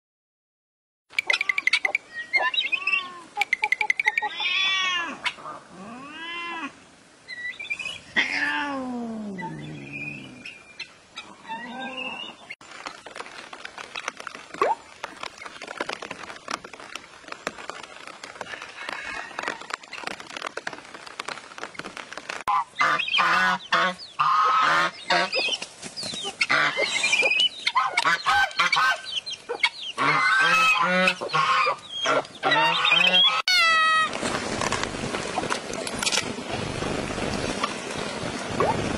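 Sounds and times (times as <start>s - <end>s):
poultry calling: 26.2s - 34.1s.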